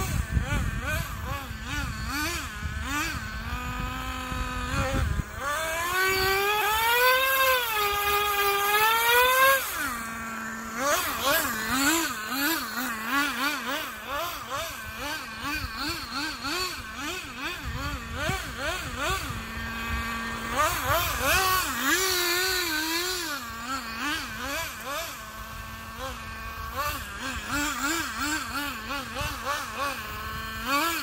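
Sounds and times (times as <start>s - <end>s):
small nitro engine revving: 0.0s - 31.0s.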